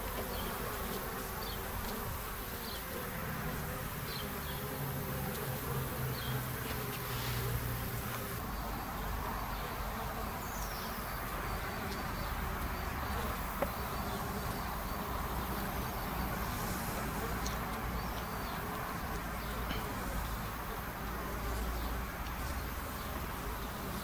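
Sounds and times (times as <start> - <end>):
bees buzzing: 0.0 - 24.0.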